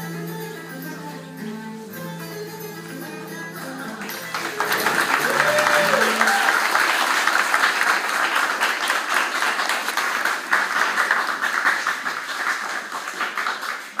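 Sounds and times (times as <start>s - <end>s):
audience clapping: 4.0s - 14.0s.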